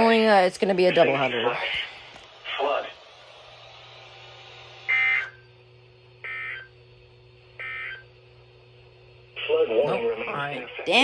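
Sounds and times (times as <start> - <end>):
electronic data tone bursts: 4.9 - 5.6, 6.2 - 6.8, 7.6 - 8.1
faint radio hiss: 9.2 - 11.0.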